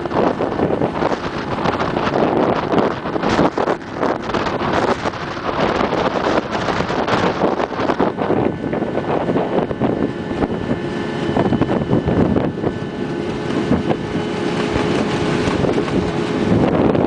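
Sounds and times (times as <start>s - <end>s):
winch machine humming and whining: 0.0s - 17.0s
wind gusts on microphone: 0.0s - 17.0s.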